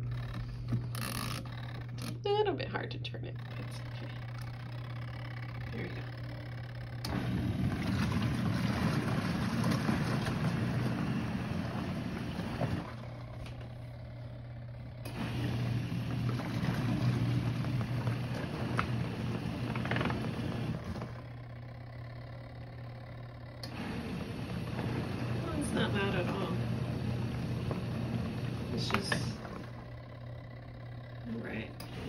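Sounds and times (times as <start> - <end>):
washing machine motor hum: 0.0 - 32.0
water and clothes churning: 7.0 - 13.6, 15.1 - 21.2.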